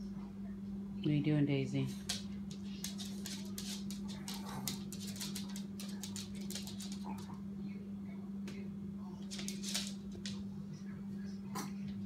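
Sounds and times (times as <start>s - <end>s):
steady low hum: 0.0s - 12.0s
dog claws clicking on wood floor: 2.0s - 7.3s, 9.2s - 10.4s.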